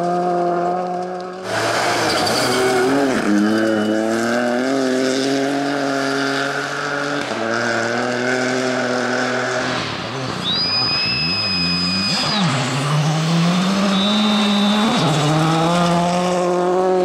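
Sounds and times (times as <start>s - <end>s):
rally car engine revving: 0.0s - 17.0s.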